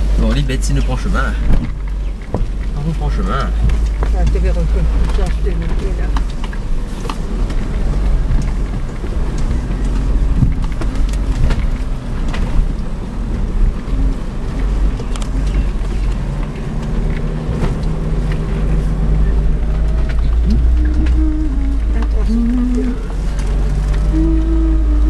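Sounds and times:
car engine rumbling: 0.0 - 25.0
car body knocks and rattles: 1.4 - 2.8.

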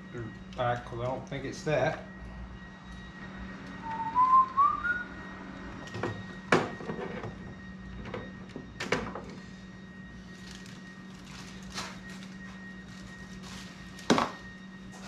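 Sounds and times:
steady low hum: 0.0 - 15.0
person whistling: 3.8 - 5.1.

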